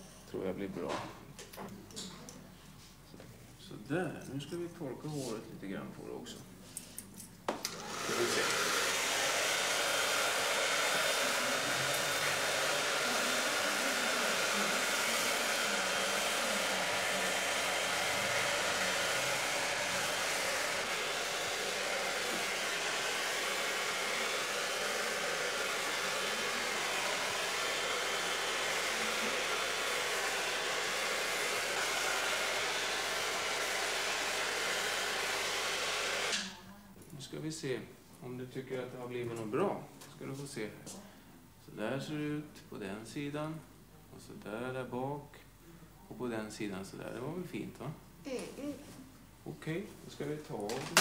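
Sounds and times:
hair dryer blowing: 0:07.5 - 0:36.6, 0:50.6 - 0:51.0.

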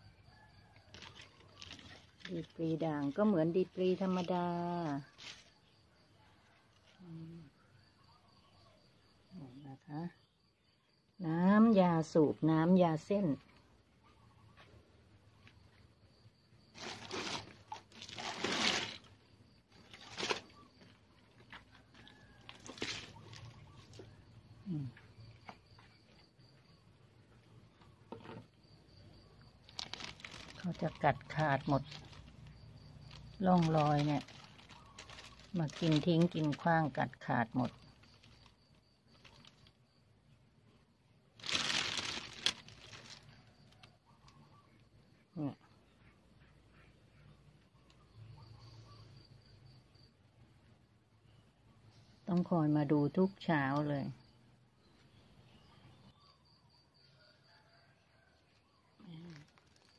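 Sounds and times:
rustling and crinkling: 0:00.8 - 0:05.7, 0:16.6 - 0:26.6, 0:29.4 - 0:39.8, 0:41.4 - 0:43.9, 0:59.1 - 0:59.9.

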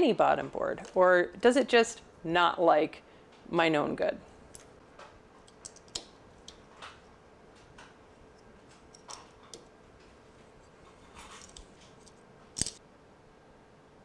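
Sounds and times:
small clicks and light scrapes: 0:07.6 - 0:12.8.

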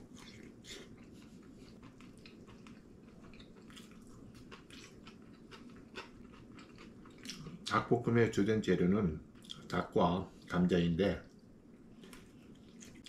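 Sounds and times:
faint chewing with mouth clicks: 0:00.0 - 0:07.7, 0:09.3 - 0:09.8, 0:11.2 - 0:13.0.

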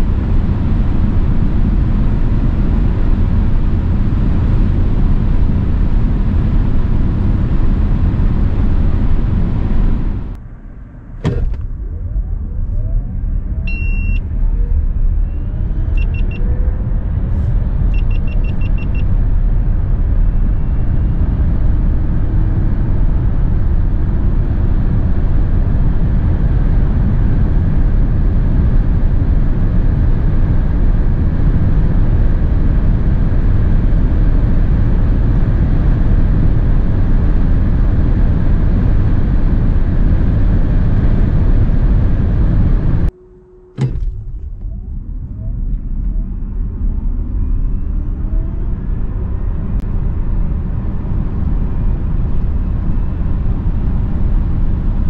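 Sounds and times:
road tyre and wind noise: 0:00.0 - 0:55.0.

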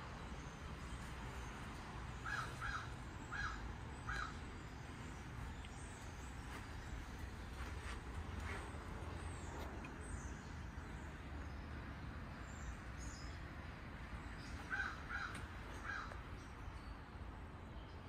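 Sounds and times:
crow cawing: 0:02.2 - 0:04.4, 0:14.7 - 0:16.2.

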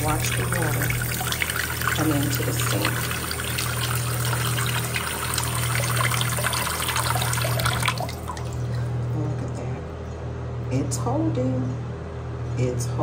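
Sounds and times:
faucet water splashing into sink: 0:00.0 - 0:08.8.

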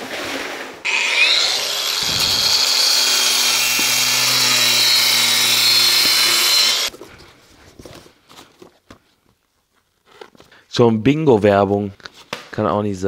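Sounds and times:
angle grinder cutting cardboard: 0:00.8 - 0:06.9.

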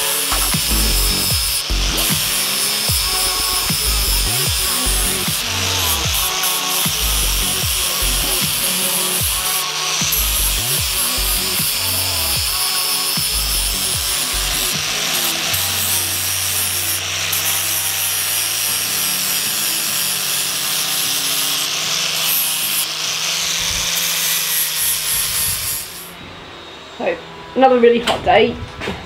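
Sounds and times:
music playing: 0:00.0 - 0:22.8
angle grinder grinding steel: 0:00.0 - 0:26.2.

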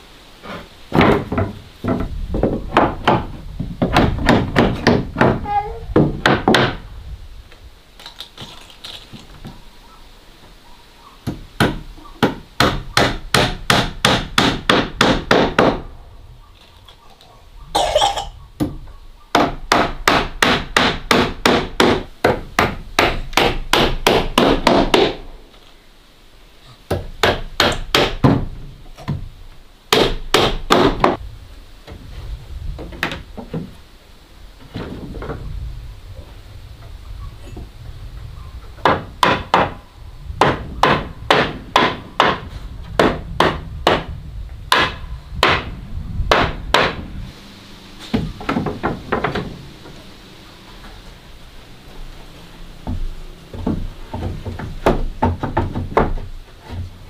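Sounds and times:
hammer nailing wooden boards: 0:00.9 - 0:06.8, 0:11.2 - 0:15.9, 0:18.6 - 0:25.3, 0:26.9 - 0:29.3, 0:29.9 - 0:31.2, 0:38.8 - 0:39.8, 0:40.4 - 0:44.1, 0:44.7 - 0:45.7, 0:46.3 - 0:47.0, 0:48.1 - 0:49.6, 0:52.8 - 0:56.9.

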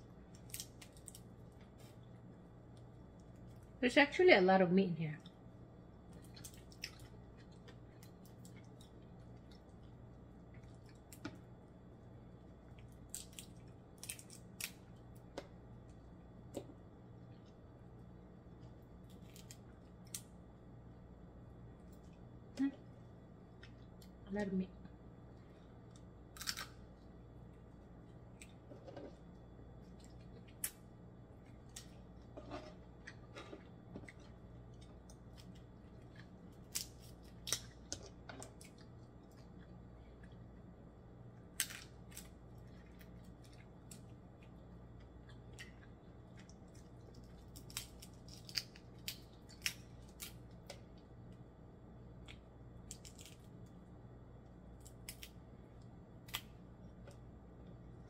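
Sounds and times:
low steady hum: 0:00.0 - 0:58.0
crab shell cracking by hand: 0:00.2 - 0:01.7, 0:12.7 - 0:15.6, 0:19.0 - 0:20.4, 0:25.8 - 0:27.0, 0:34.2 - 0:39.6, 0:41.4 - 0:51.4, 0:52.2 - 0:53.8, 0:54.7 - 0:57.2
chewing: 0:06.1 - 0:11.3, 0:31.4 - 0:40.7, 0:42.1 - 0:50.3.

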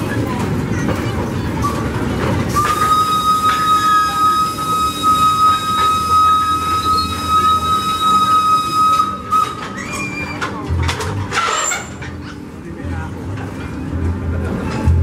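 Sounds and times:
rail cars rumbling: 0:00.0 - 0:15.0
steam locomotive whistle: 0:01.6 - 0:10.4.

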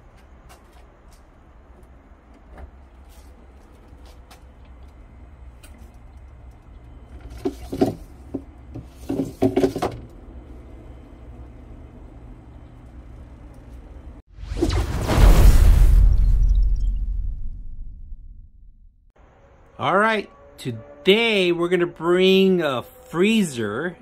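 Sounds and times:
freezer low hum: 0:00.0 - 0:14.2.

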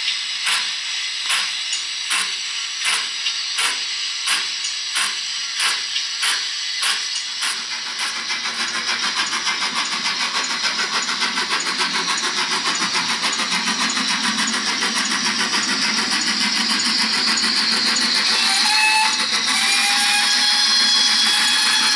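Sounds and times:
model steam locomotive chuffing: 0:00.0 - 0:21.9.

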